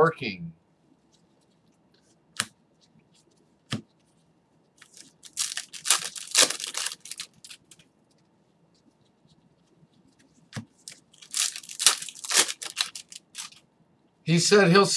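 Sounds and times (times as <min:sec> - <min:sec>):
foil wrapper tearing and crinkling: 0:04.8 - 0:07.8, 0:10.8 - 0:13.6.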